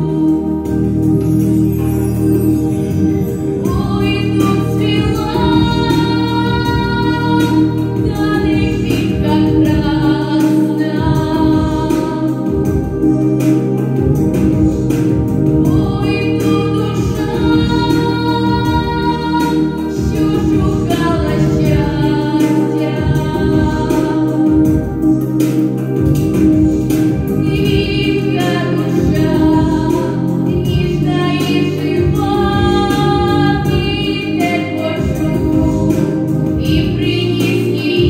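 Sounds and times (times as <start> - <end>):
sustained low chords: 0.0 - 38.0
girl singing into a microphone: 3.6 - 12.7, 15.6 - 24.8, 27.4 - 38.0.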